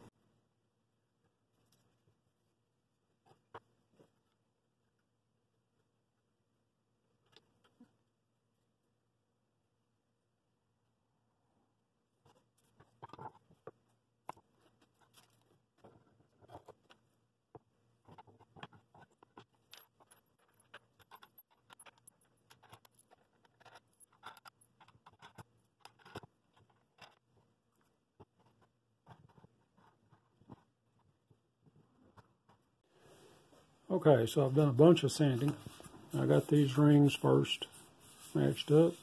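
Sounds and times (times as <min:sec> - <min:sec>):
hands clicking and scraping on a press: 0:12.2 - 0:32.8.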